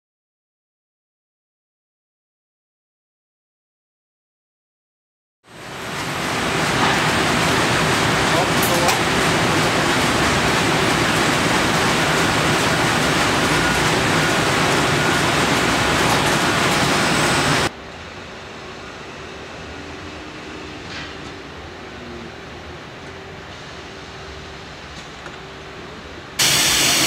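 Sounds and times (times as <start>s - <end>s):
loud factory machinery: 5.5s - 27.0s.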